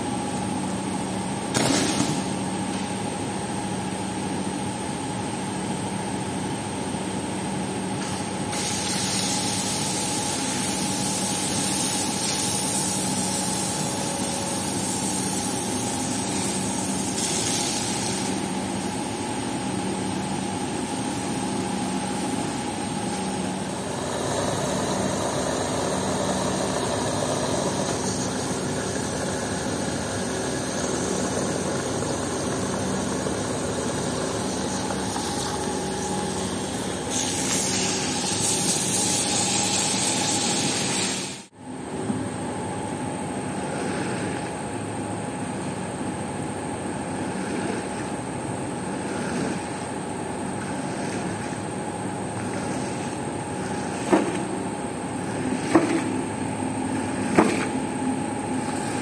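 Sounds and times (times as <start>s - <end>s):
pressure washer machine hum: 8.0s - 41.6s, 47.0s - 59.0s
water jet spraying onto floor: 8.5s - 18.5s, 34.4s - 41.5s.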